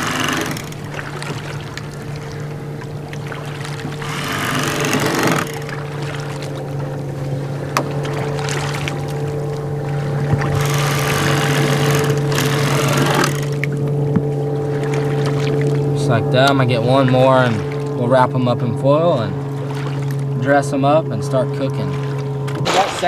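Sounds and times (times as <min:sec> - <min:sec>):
electric knife motor hum: 0:00.0 - 0:00.9, 0:04.0 - 0:06.6, 0:10.4 - 0:13.7.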